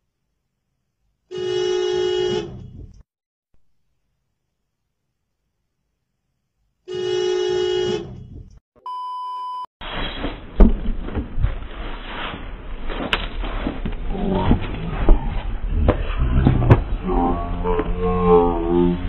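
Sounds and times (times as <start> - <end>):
car horn honking: 1.3 - 3.0, 6.9 - 8.5
censor bleep: 8.8 - 9.7.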